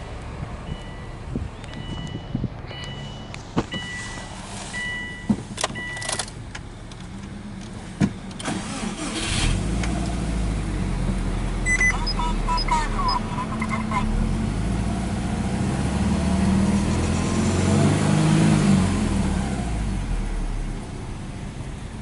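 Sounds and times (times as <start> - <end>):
car engine idling: 0.0 - 15.2
car warning chime beeping: 0.6 - 6.3, 11.6 - 14.1.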